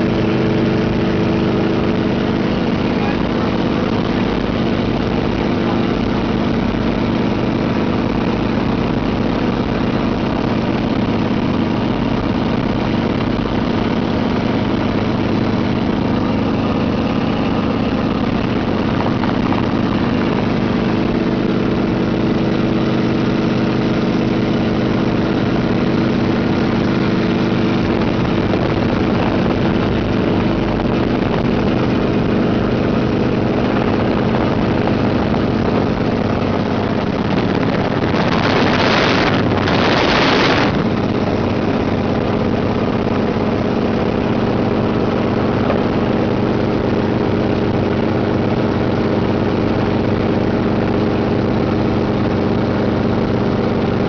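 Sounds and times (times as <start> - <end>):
helicopter engine and rotor: 10.5 - 25.2.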